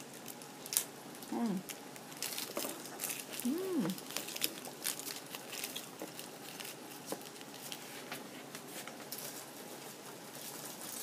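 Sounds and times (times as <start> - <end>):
person chewing sticky sweet: 0.2 - 7.8.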